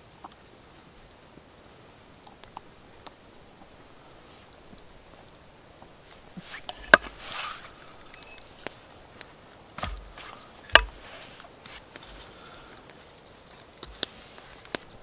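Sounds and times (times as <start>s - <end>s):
cord and cloth rustling: 3.6s - 15.0s
sharp wooden clicks: 6.5s - 15.0s.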